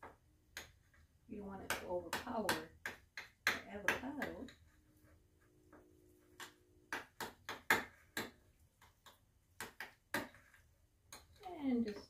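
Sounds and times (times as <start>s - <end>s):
utensil tapping ceramic bowl: 1.6s - 4.6s, 6.4s - 12.0s.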